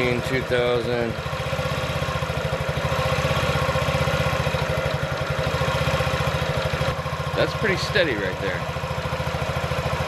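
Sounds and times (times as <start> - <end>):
scooter engine idling: 0.0 - 10.0.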